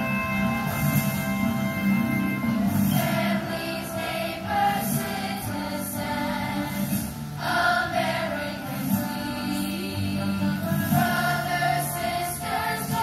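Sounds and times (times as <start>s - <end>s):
instrumental accompaniment: 0.0s - 5.7s
children's chorus singing: 2.8s - 13.0s.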